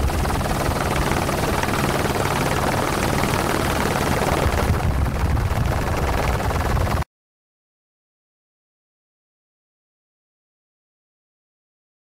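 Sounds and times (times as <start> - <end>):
helicopter rotor drone: 0.0 - 7.1.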